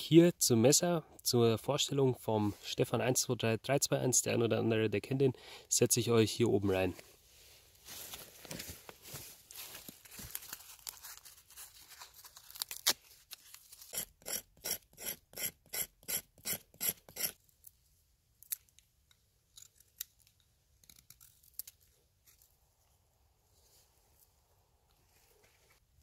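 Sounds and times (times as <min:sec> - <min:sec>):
faint rustles and clicks: 0:07.0 - 0:13.9
bark crinkling and tearing: 0:09.6 - 0:13.9, 0:20.8 - 0:22.5
knife scraping bark: 0:13.7 - 0:17.4.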